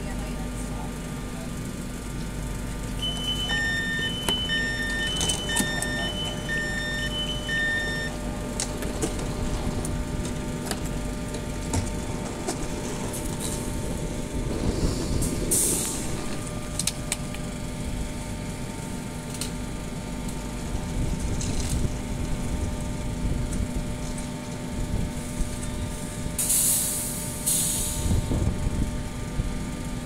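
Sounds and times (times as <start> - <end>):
train hum: 0.0 - 30.0
platform noise: 2.9 - 10.2
two-tone door warning beep: 3.0 - 8.5.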